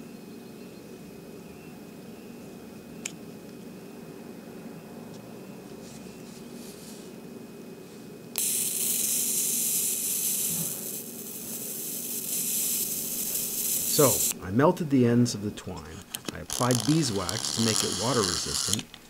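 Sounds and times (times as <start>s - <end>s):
electric arc buzzing: 8.3s - 14.7s, 15.3s - 19.0s.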